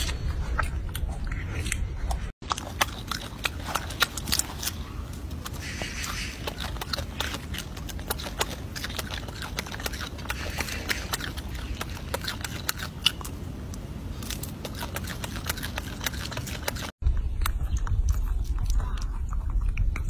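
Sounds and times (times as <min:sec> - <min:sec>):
monkey crunching food: 0:00.0 - 0:20.0
steady low rumble: 0:16.9 - 0:20.0.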